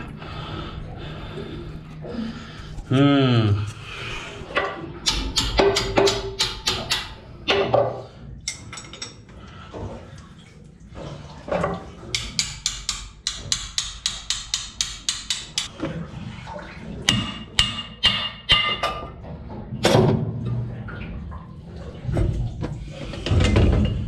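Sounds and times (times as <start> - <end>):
tool knocking against metal: 5.0 - 7.8, 12.2 - 15.7.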